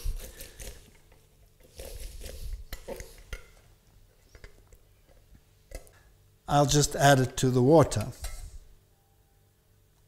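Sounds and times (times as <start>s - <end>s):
lemon squishing on juicer: 0.0s - 3.4s.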